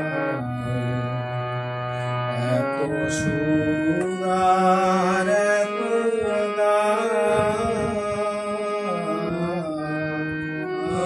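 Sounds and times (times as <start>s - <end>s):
harmonium sustained notes: 0.0s - 11.0s
man singing: 0.0s - 11.0s.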